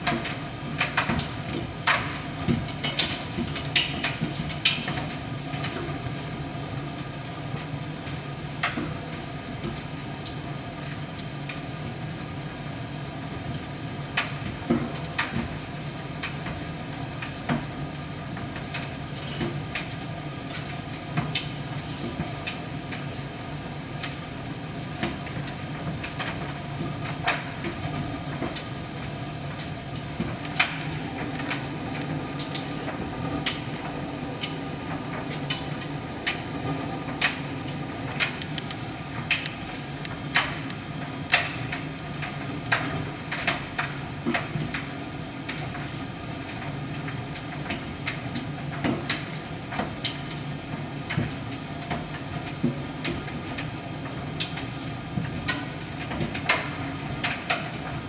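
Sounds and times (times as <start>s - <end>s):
tumble dryer humming: 27.8s - 42.7s
clicks and knocks in dryer: 55.2s - 58.0s.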